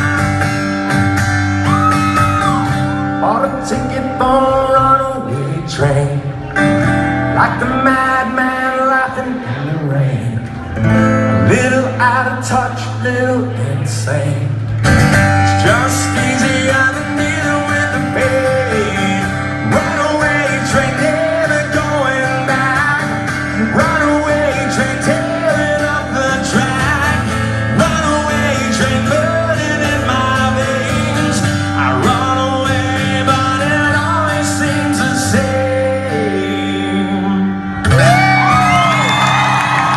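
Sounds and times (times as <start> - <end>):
acoustic guitar strumming: 0.0 - 39.1
crowd cheering and whooping: 1.4 - 3.1, 37.9 - 39.9
man singing: 1.8 - 39.1.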